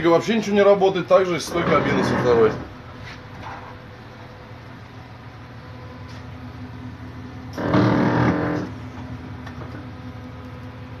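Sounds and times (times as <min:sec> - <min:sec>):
loud buzzing tone: 0:01.5 - 0:02.8, 0:07.4 - 0:09.0.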